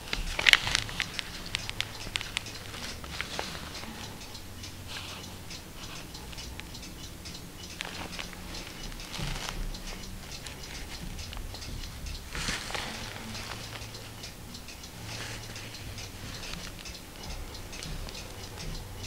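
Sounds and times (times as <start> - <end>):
rustling old book pages: 0.0 - 4.1, 7.8 - 11.5, 12.3 - 13.9, 15.1 - 16.9
small ticks and clicks: 0.0 - 19.0.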